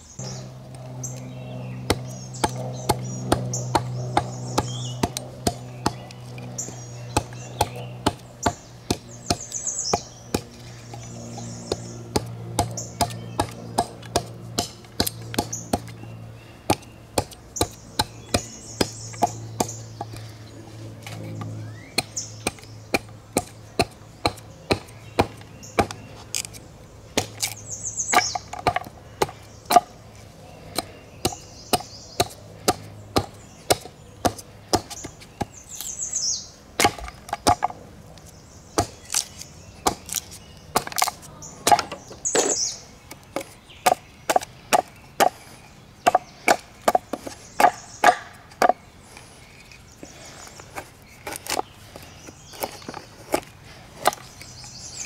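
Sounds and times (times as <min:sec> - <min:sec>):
birds chirping: 0:00.0 - 0:55.0
blade chopping wood: 0:01.9 - 0:06.0, 0:11.7 - 0:16.0, 0:16.7 - 0:20.2, 0:21.9 - 0:26.6, 0:27.2 - 0:29.9, 0:30.7 - 0:35.9, 0:36.8 - 0:37.8, 0:38.8 - 0:42.6, 0:46.0 - 0:48.8.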